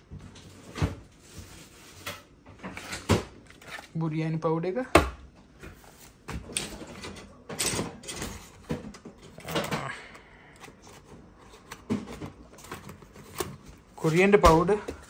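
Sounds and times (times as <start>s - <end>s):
cardboard packets knocking and rustling: 10.7s - 15.0s.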